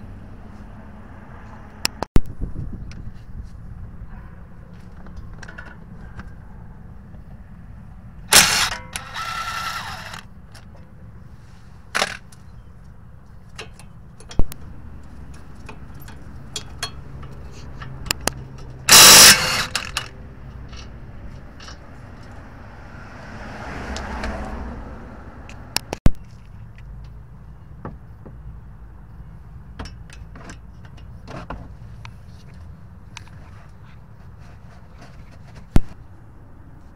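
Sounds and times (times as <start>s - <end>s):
cordless impact wrench hammering: 8.3s - 10.2s, 18.9s - 20.1s
loosened bolt whirring: 8.3s - 10.7s, 18.1s - 20.9s
socket and tool clicks: 17.8s - 20.2s.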